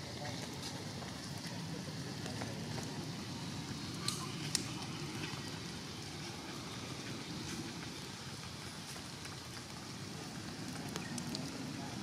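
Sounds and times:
rain on foliage: 0.0 - 12.0
sharp drip clicks: 3.9 - 5.7, 10.5 - 12.0.

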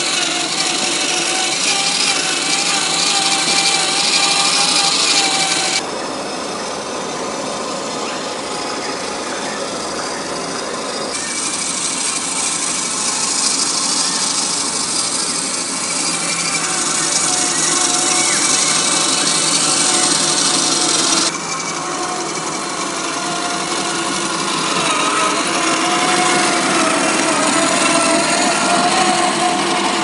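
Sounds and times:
small electric motor whining: 0.0 - 30.0.

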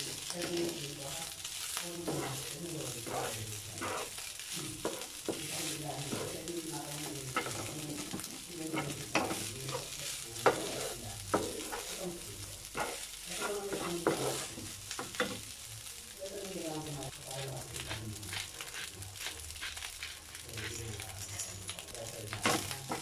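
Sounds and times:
rice sizzling in frying pan: 0.0 - 23.0
spatula tapping and scraping pan: 2.0 - 12.0, 12.7 - 15.4, 22.4 - 23.0.

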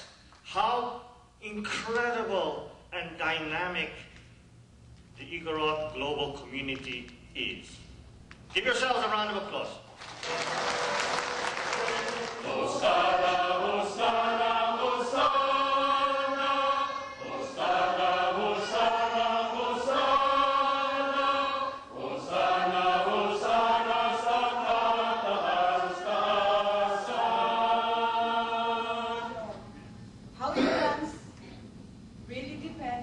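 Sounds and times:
applause: 10.0 - 12.5
group of voices chanting: 11.8 - 29.4.

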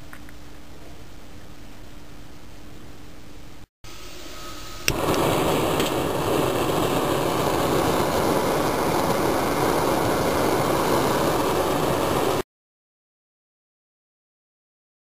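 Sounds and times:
gas flame roaring: 4.4 - 12.4.

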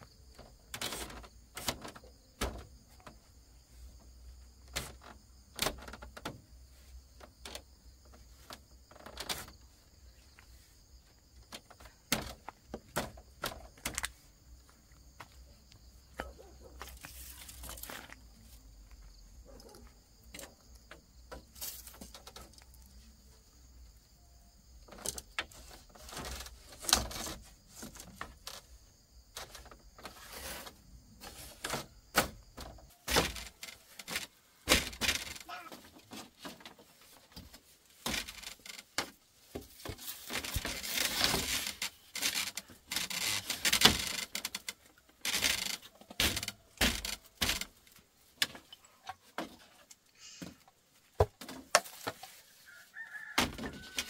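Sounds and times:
rustling of objects handled: 0.0 - 19.8, 21.3 - 23.4, 24.8 - 54.0.

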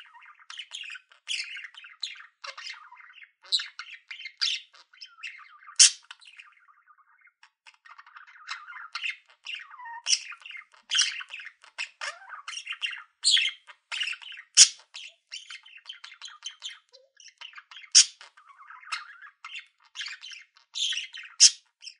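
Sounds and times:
budgerigar warbling: 5.6 - 6.2, 8.4 - 15.6, 17.8 - 19.3, 20.8 - 21.6
budgerigar squawks: 5.7 - 6.2, 10.0 - 15.5, 17.9 - 18.3, 20.0 - 21.6.

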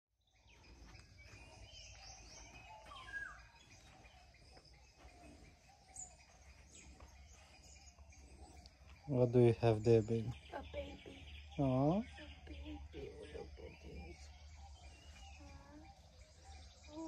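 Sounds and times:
birds chirping: 0.2 - 17.0.

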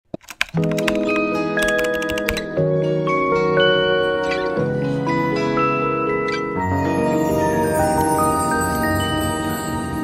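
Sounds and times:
sharp clicks: 0.1 - 2.5
music with sustained chords: 0.6 - 10.0.

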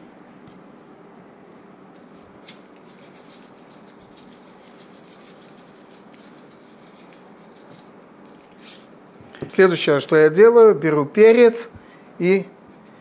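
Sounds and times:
salt grains ticking from shaker: 2.0 - 8.9.

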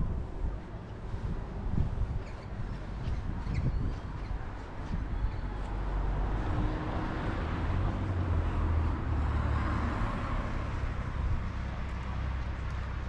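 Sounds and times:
steady low traffic rumble: 0.0 - 13.0
motor vehicle passing: 5.6 - 12.9.

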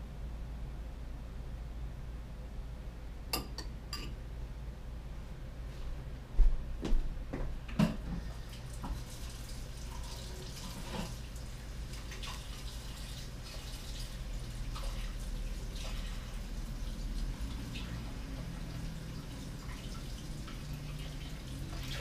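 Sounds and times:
low steady hum: 0.0 - 22.0
water running and dripping at sink: 8.2 - 22.0.

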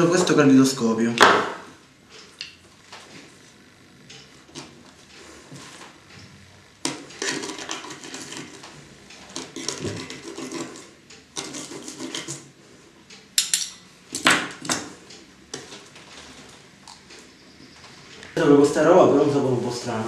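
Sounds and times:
cutlery scraping a plate: 6.9 - 8.6, 9.3 - 12.5, 13.4 - 13.9
sharp cutlery clinks: 13.4 - 13.8.

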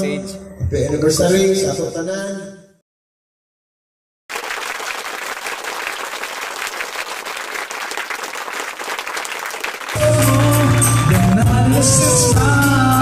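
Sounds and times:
crowd applauding: 4.3 - 12.3
music with singing: 10.0 - 13.0.

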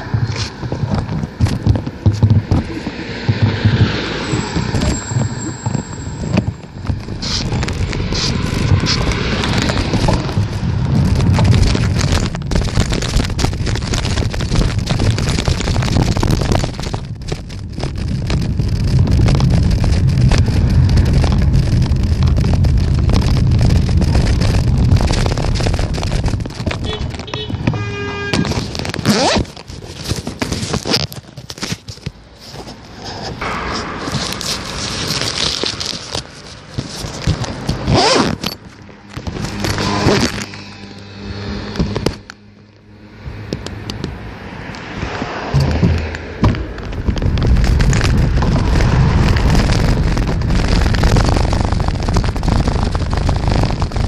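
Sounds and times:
wind buffeting microphone: 0.0 - 30.8, 43.3 - 54.0
bicycle clicks and knocks: 0.0 - 32.3, 34.0 - 42.6, 43.5 - 50.6
vehicle passing by: 2.6 - 6.2, 7.6 - 11.3, 39.5 - 46.8.

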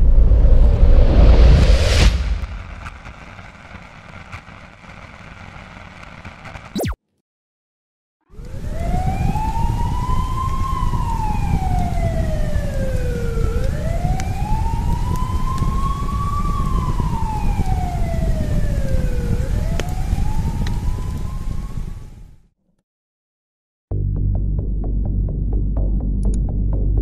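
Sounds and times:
deep steady rumble: 0.0 - 5.7
emergency siren wailing: 8.3 - 22.2.

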